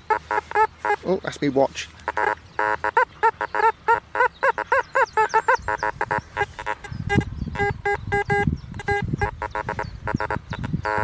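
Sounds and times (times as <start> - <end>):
metal detector beeping: 2.1 - 3.6, 5.8 - 11.0.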